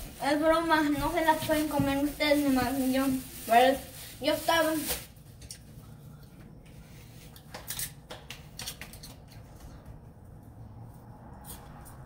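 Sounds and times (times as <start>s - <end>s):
tortilla press clicks and crinkles: 7.3s - 9.8s.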